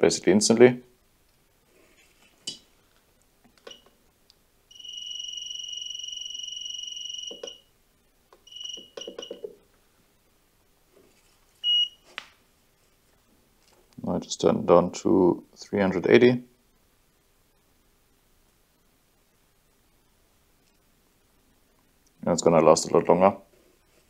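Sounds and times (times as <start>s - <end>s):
soldering station beeping: 4.7s - 7.7s, 8.4s - 9.6s, 11.6s - 12.0s.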